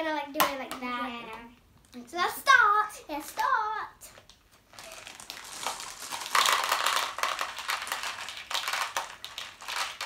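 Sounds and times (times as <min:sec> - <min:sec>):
plastic bags crinkling: 0:04.3 - 0:10.0
candies rattling onto plates: 0:04.8 - 0:10.0.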